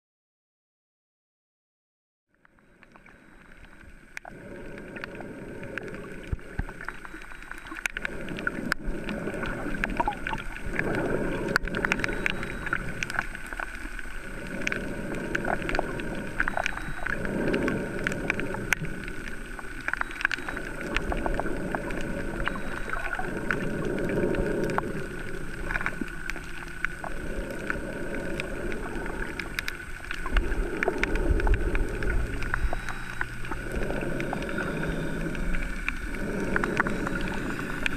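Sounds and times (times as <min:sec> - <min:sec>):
small underwater clicks: 0:02.3 - 0:37.9
underwater rushing water: 0:02.5 - 0:37.9.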